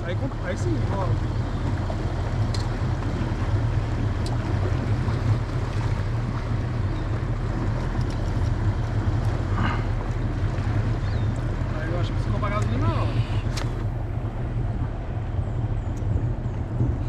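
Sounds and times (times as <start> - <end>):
outboard motor droning: 0.0 - 17.0
rushing water: 0.0 - 17.0
wind noise: 13.4 - 17.0.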